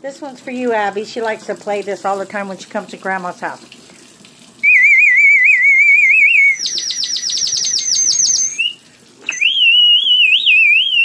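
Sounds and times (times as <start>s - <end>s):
water bird whistle warbling: 4.6s - 11.0s.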